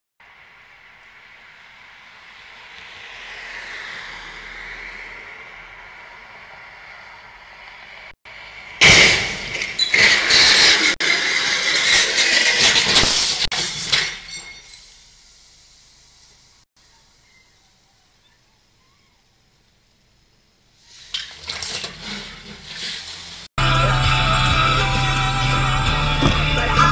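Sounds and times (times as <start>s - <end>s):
car passing: 0.2s - 8.8s
loud crash: 8.8s - 15.0s
debris clattering: 8.8s - 15.2s, 21.0s - 23.5s
glass shattering: 8.8s - 15.2s.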